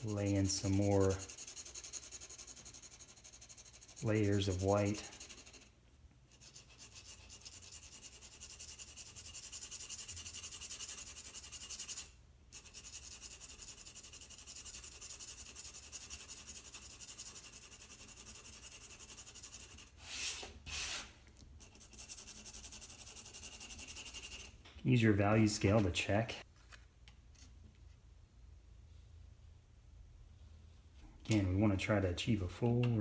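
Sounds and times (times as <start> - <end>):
pencil shading on paper: 0.0 - 5.7, 6.3 - 19.9, 21.6 - 24.5
louder pencil swishes: 19.7 - 21.2.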